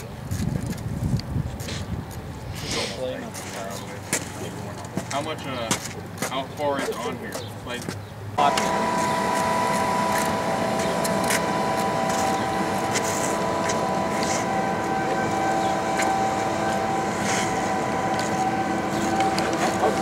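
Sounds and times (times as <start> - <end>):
air blower whining: 8.4 - 20.0.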